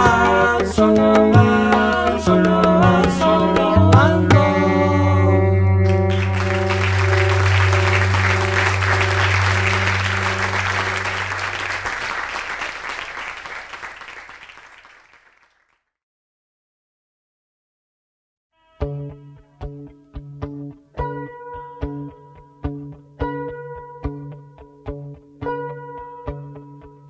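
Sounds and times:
acoustic guitar chord ringing: 5.1 - 12.1
audience applause: 5.9 - 15.7.

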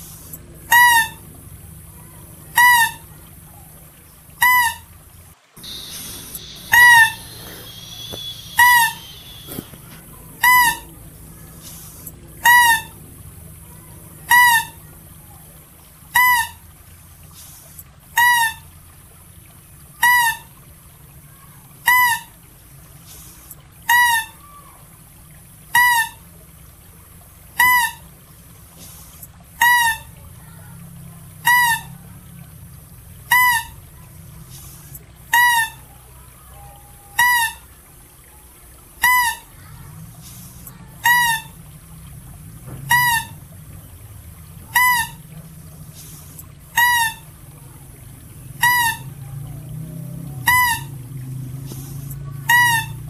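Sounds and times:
faint low hum: 0.0 - 50.4
mouse deer high-pitched calls: 2.0 - 3.8, 5.6 - 13.0, 42.9 - 43.4, 44.7 - 45.2.

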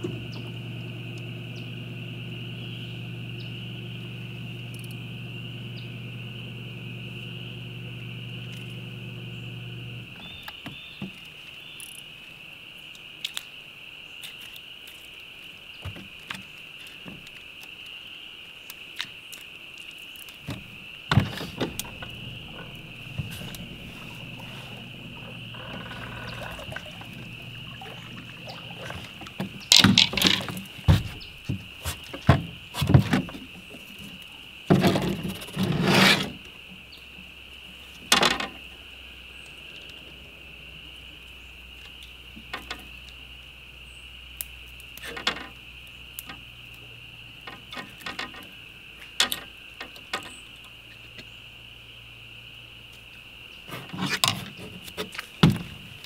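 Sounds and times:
high-pitched insect drone: 20.6 - 31.4.

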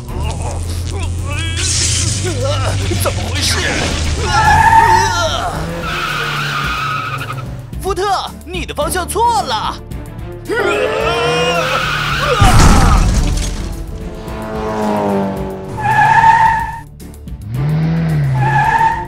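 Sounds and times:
background music: 0.0 - 19.0
tire squeals: 0.4 - 7.6, 10.7 - 13.1, 14.2 - 16.9, 17.6 - 19.0
loud crash: 12.4 - 15.4.

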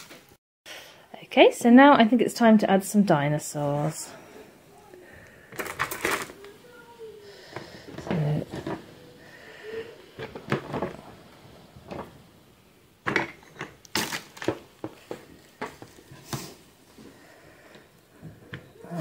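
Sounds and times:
plastic toys clicking on pebbles: 5.6 - 6.5.

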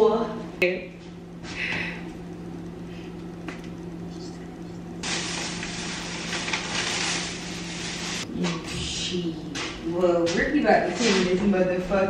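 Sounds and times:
steady low hum: 0.0 - 12.0
plastic bag rustling: 5.0 - 8.2.

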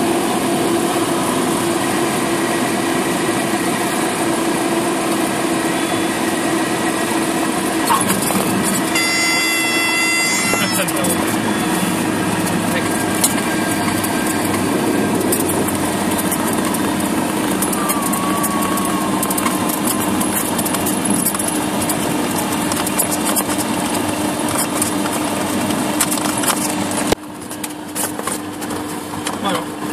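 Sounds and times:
aircraft engine and propeller hum: 0.0 - 29.9
small clicks and rattles: 13.0 - 29.4.

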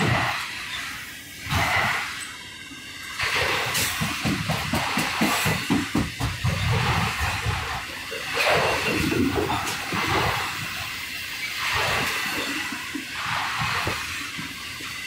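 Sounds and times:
steady rush of passing train: 0.0 - 15.0
train wheels clattering over rail joints: 3.0 - 15.0.

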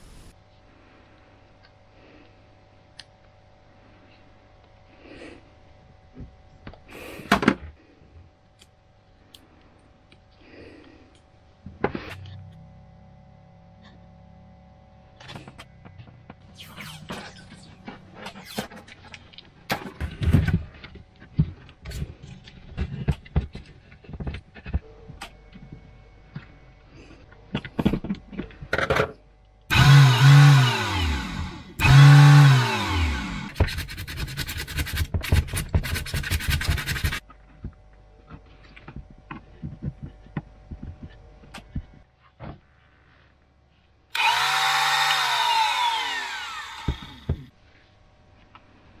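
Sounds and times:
electric motor whine: 29.7 - 33.6, 44.1 - 47.4.

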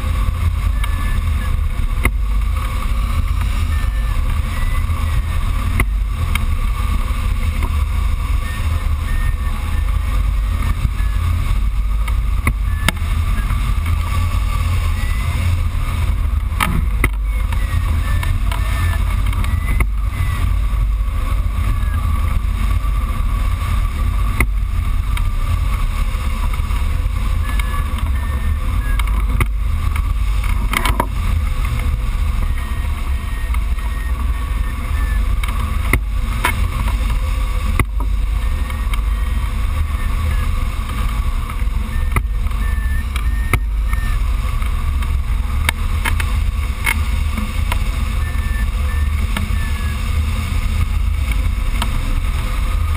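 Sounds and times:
high electronic beeps: 0.0 - 2.0, 3.1 - 7.4, 8.0 - 11.8, 12.5 - 22.2, 27.0 - 29.9, 31.9 - 44.5, 47.9 - 50.9
wind buffeting microphone: 0.0 - 52.9.

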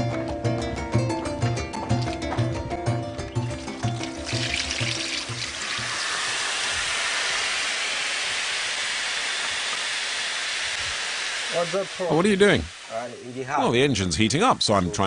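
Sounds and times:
music: 0.0 - 6.0
water pouring on hot engine: 3.4 - 9.2
steam hissing: 5.5 - 14.2.

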